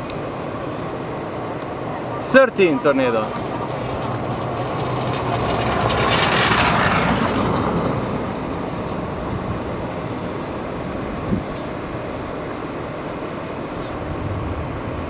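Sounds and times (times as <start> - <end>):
steady low rumble: 0.0 - 15.0
vehicle passing close by: 2.0 - 12.3, 13.6 - 15.0.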